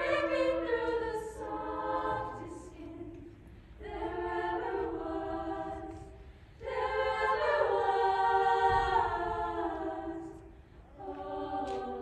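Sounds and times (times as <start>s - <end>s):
choir singing chords: 0.0s - 12.0s.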